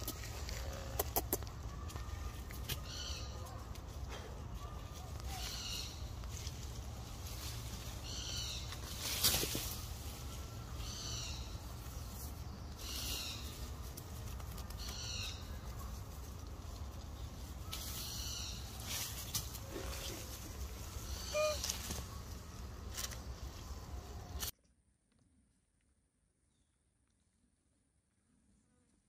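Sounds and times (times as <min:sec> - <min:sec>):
short high-pitched call: 0:21.2 - 0:21.7.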